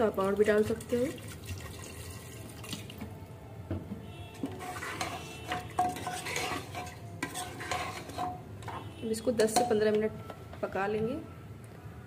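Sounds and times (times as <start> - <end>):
metal spoon scraping and clinking pot: 4.4 - 10.1.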